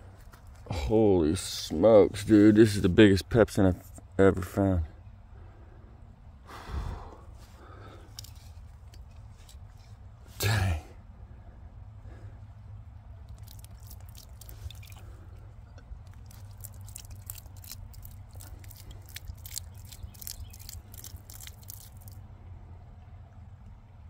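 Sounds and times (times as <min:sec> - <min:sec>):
water dripping onto dirt: 0:13.2 - 0:22.2.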